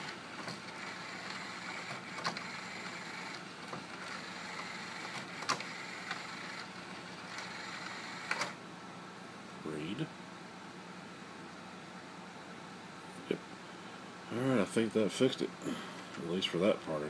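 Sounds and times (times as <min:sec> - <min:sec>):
cd changer motor running: 0:00.0 - 0:08.6.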